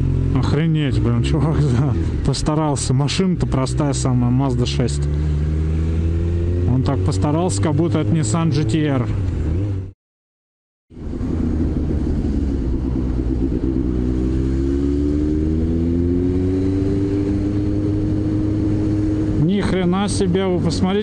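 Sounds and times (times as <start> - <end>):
motorcycle engine accelerating: 0.0 - 9.9, 10.9 - 21.0
wind noise: 10.9 - 20.8.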